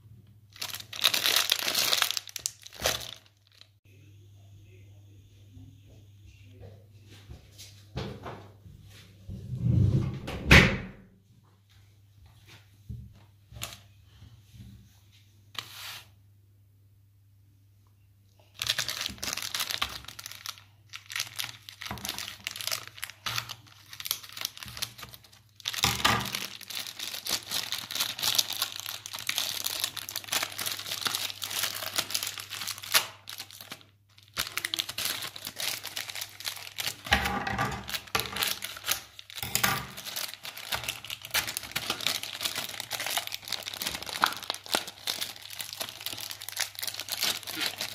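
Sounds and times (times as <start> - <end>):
plastic bag crinkling: 0.5 - 3.8, 18.4 - 47.9.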